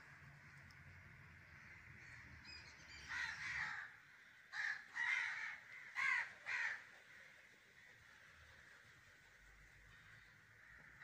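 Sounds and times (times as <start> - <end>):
crows cawing: 3.1 - 7.4, 9.9 - 11.0.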